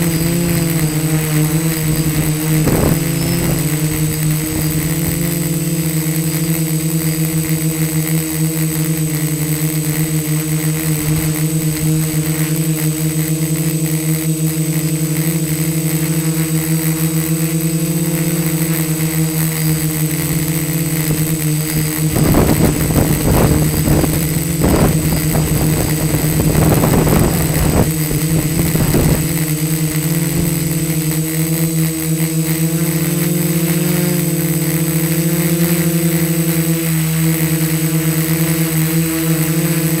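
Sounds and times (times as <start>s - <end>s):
wind gusts on microphone: 0.0s - 5.5s, 20.5s - 31.0s
drone motors humming: 0.0s - 40.0s.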